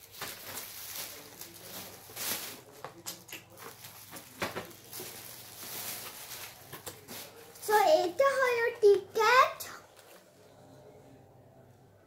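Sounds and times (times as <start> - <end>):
plastic bag rustling: 0.0 - 9.0.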